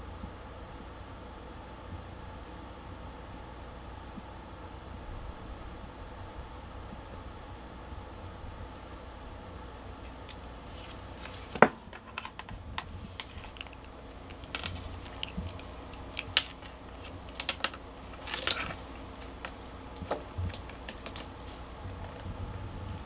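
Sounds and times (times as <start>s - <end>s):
stick toy clicking on desk: 13.2s - 21.6s.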